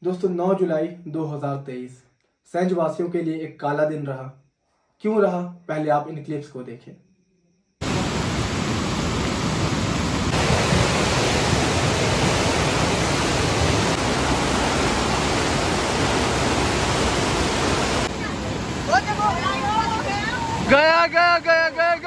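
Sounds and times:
river torrent rushing: 7.8s - 22.0s.

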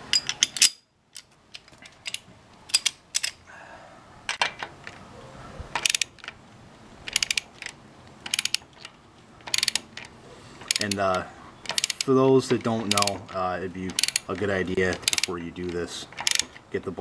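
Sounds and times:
socket ratchet clicking: 0.1s - 3.4s, 5.8s - 6.4s, 7.1s - 16.7s.

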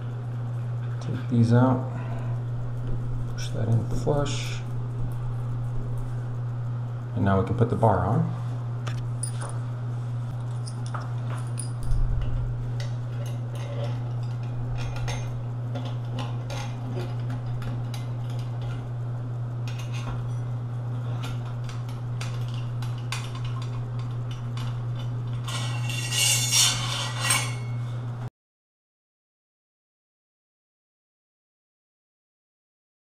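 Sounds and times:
steady low hum: 0.0s - 28.3s
metal bar scraping rattle: 24.6s - 27.8s.

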